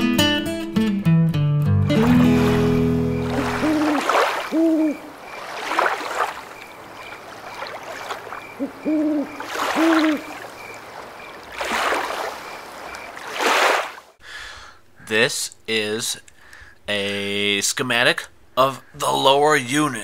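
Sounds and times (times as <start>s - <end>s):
owl hooting: 3.1s - 5.8s, 8.3s - 10.8s.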